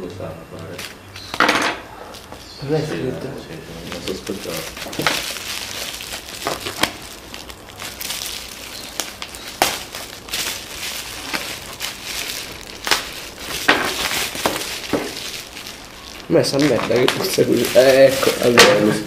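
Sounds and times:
bubble wrap crinkling: 0:02.1 - 0:19.0
sharp crackles: 0:03.8 - 0:19.0.

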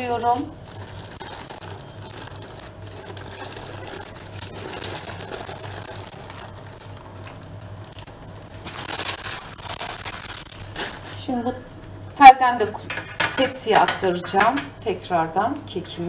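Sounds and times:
baking paper peeling and rustling: 0:00.0 - 0:11.3
low steady hum: 0:00.0 - 0:16.0.

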